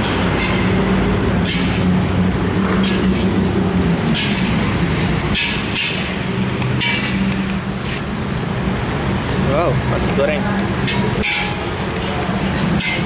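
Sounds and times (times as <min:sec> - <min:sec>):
sharp metallic clanks: 0:00.0 - 0:01.9, 0:04.0 - 0:07.6, 0:10.8 - 0:11.8, 0:12.5 - 0:13.0.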